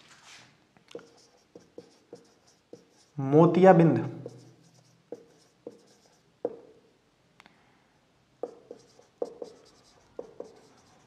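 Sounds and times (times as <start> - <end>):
marker pen writing on whiteboard: 0.9 - 3.2, 4.2 - 6.8, 8.4 - 11.0.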